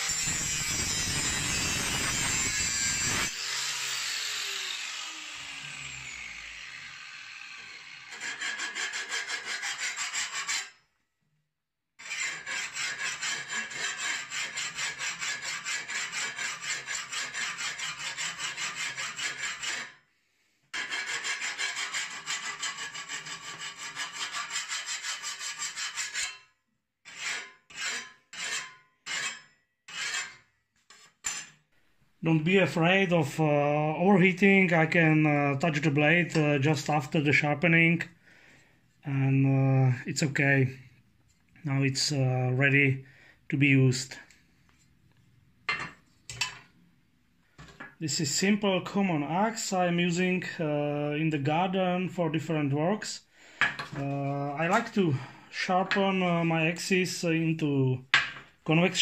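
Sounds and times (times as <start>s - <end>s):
grinder winding down whine: 0.0s - 8.1s
angle grinder grinding steel: 0.0s - 10.8s, 12.0s - 20.0s, 20.8s - 26.5s, 27.1s - 30.4s
hand file rasping on metal: 0.0s - 10.8s, 12.0s - 20.0s, 20.7s - 31.5s.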